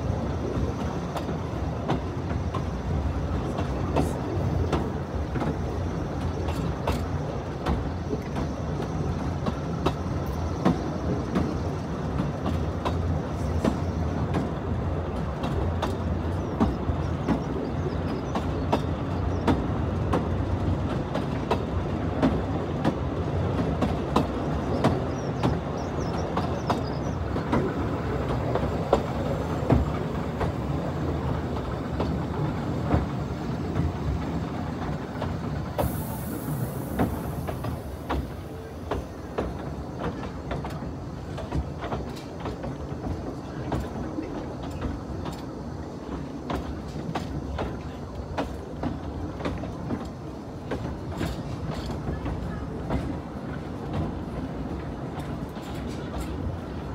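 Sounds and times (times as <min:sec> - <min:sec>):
train carriages rumbling on track: 0:00.0 - 0:56.9
wheels clicking over rail joints: 0:00.0 - 0:56.9.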